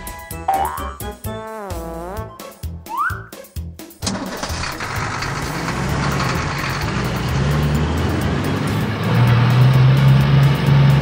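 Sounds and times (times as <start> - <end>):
heavy truck engine running: 4.0 - 11.0.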